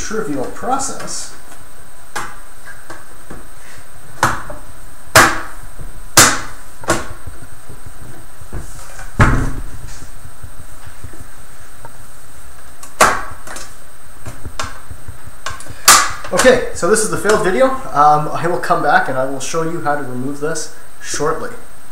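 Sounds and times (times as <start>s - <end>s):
heavy thump on table: 8.6s - 10.0s.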